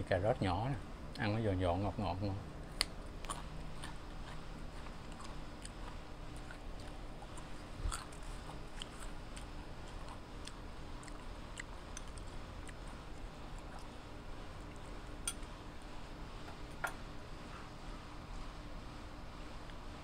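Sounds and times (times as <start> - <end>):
crunching raw carrots: 2.7 - 14.0.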